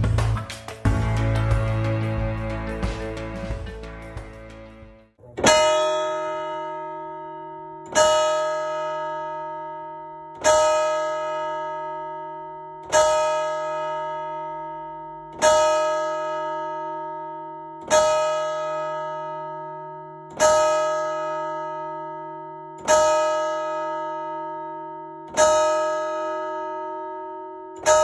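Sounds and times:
large church bell ringing: 0:05.8 - 0:28.0.

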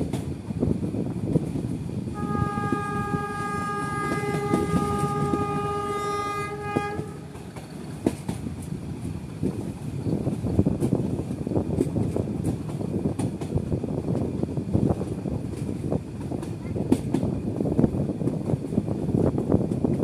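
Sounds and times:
train coaches rumbling on track: 0:00.0 - 0:20.0
locomotive horn blast: 0:02.1 - 0:07.6.

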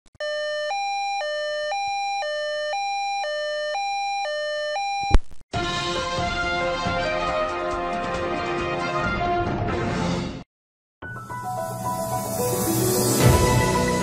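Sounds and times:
two-tone emergency siren: 0:00.2 - 0:05.2
theme music: 0:05.6 - 0:10.4, 0:11.0 - 0:14.0.

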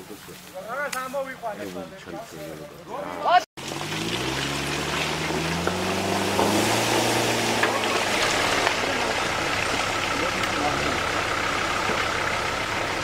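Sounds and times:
tyres rushing through mud: 0:03.6 - 0:13.0
vehicle engine at low revs: 0:03.6 - 0:13.0.

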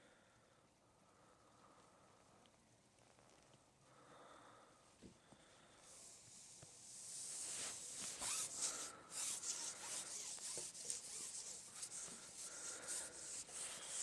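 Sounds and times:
fishing pole rubbing and rasping: 0:07.1 - 0:14.0.

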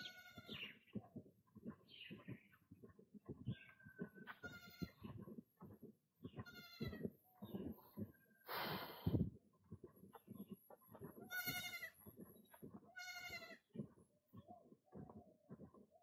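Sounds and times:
goat bleating: 0:00.0 - 0:00.6, 0:04.4 - 0:05.0, 0:06.4 - 0:07.0, 0:11.2 - 0:12.0, 0:12.9 - 0:13.6
short knocks like footsteps: 0:00.0 - 0:08.4, 0:09.0 - 0:16.0.

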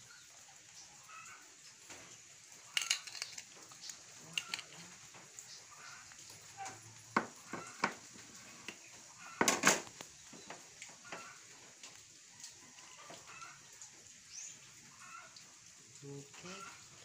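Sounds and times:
metal spoon scraping a pot: 0:02.7 - 0:05.0.

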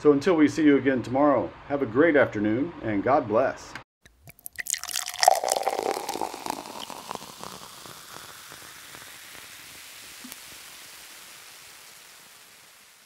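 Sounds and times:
crackling rain-like noise: 0:04.8 - 0:13.0.

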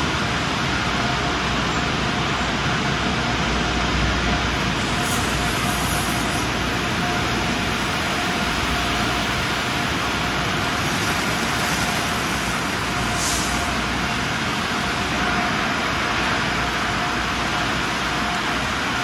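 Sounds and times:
faint constant whine: 0:00.0 - 0:19.0
machinery running: 0:00.0 - 0:19.0
spraying water: 0:04.8 - 0:14.8.

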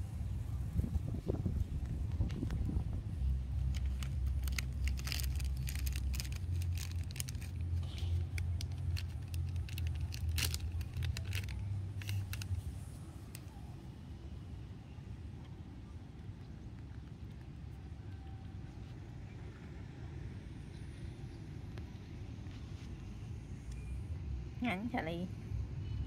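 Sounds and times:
low motor hum: 0:00.0 - 0:24.6
sharp clicks and ticks: 0:03.6 - 0:12.6.

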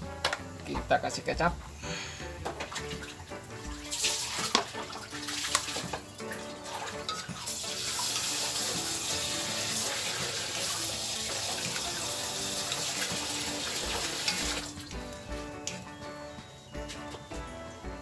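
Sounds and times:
background music with low beat: 0:00.0 - 0:18.0
sauce sizzling in a wok: 0:03.1 - 0:15.2
metal spatula stirring: 0:06.9 - 0:07.6.

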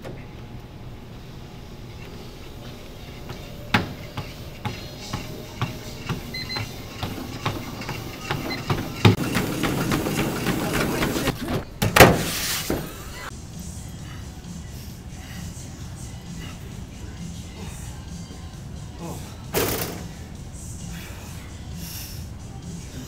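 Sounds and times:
footfalls pounding on a treadmill: 0:02.0 - 0:13.0.

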